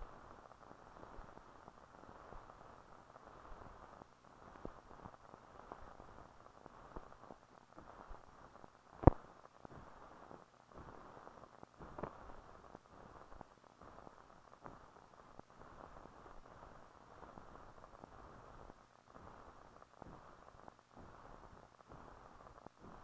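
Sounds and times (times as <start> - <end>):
film soundtrack hiss and crackle: 0.0 - 23.0
faint clicks: 8.9 - 16.4.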